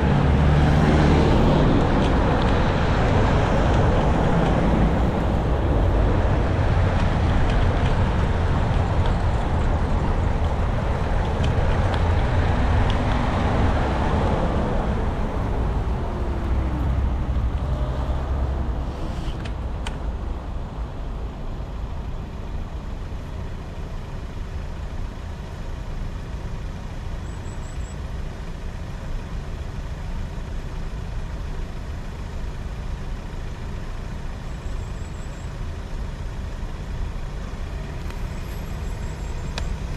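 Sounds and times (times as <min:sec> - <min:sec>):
road traffic rumble: 0:00.0 - 0:39.9.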